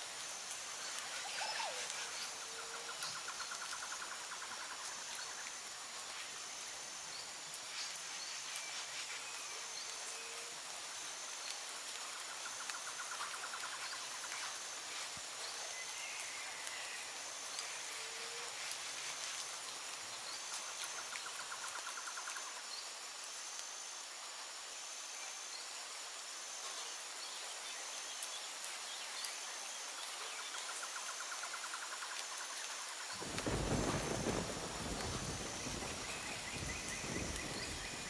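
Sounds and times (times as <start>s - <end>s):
insect high chirp: 0.0s - 38.0s
rapid insect trill: 0.0s - 38.0s
steady rain: 0.0s - 38.0s
faint bird calls: 0.9s - 4.6s.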